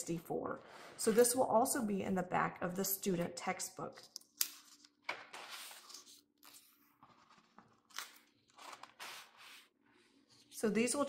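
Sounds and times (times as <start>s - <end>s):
book pages turning: 4.0s - 10.6s.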